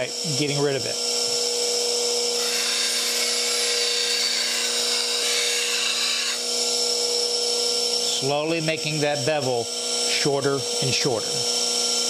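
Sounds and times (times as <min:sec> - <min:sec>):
bench grinder humming: 0:00.0 - 0:12.0
steel grinding on wheel: 0:02.4 - 0:06.6.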